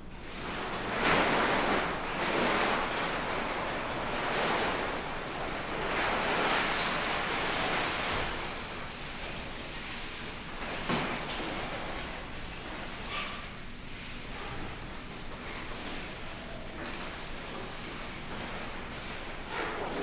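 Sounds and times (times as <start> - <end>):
fabric rustling and whooshing: 0.4 - 8.7.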